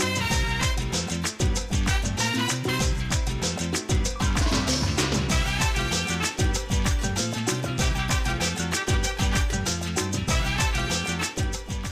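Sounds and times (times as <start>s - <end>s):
music with driving beat: 0.0s - 11.9s.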